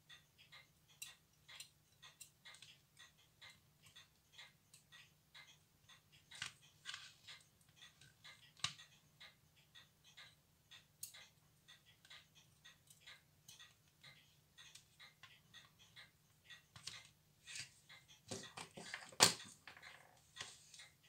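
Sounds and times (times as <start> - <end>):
tweezers clicking on metal parts: 0.6 - 6.6, 9.8 - 17.0.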